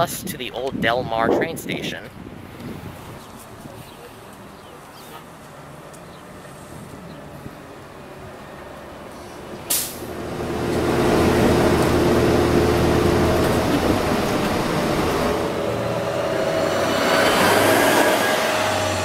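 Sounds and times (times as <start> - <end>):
bus engine running: 3.4 - 19.0
air brakes hissing: 9.1 - 10.1.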